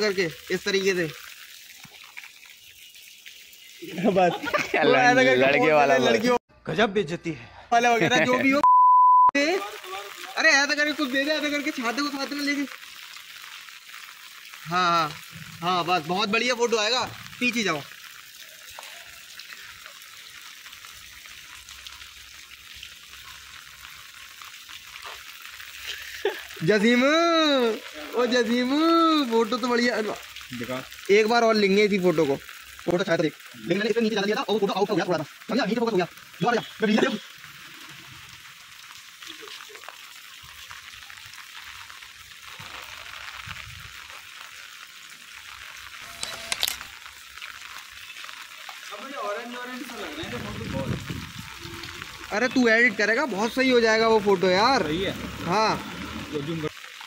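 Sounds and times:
heavy rain on wet pavement: 0.0s - 6.4s, 9.4s - 57.0s
camera shutter clicks: 46.1s - 46.9s.

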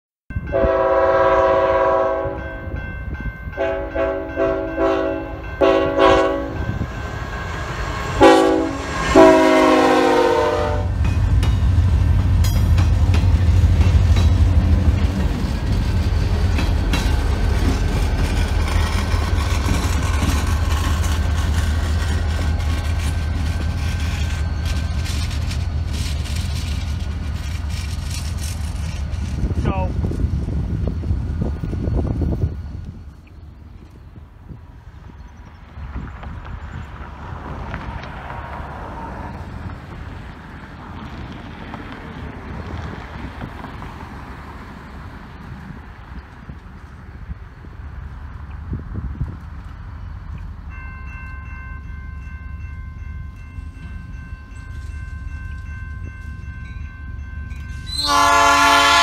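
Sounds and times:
diesel locomotive engine droning: 0.3s - 59.0s
locomotive air horn blasts: 0.4s - 2.7s, 3.6s - 6.8s, 8.0s - 11.0s, 57.8s - 59.0s
train wheels clattering: 10.9s - 29.6s.

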